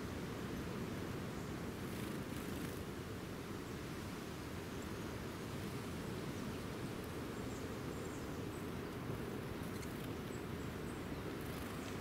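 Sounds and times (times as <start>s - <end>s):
small birds chirping: 6.4s - 12.0s.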